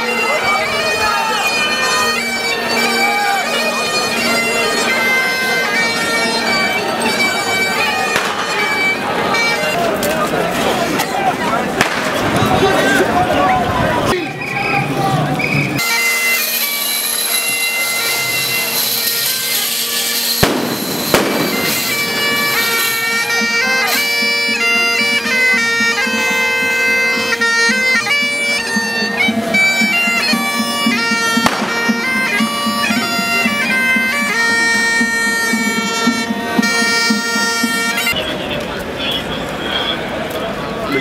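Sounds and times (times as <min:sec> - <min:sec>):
bagpipes playing: 0:00.0 - 0:12.1, 0:15.8 - 0:38.2
sharp bangs: 0:08.1 - 0:08.7, 0:11.8 - 0:12.5, 0:20.3 - 0:23.1, 0:31.4 - 0:32.1.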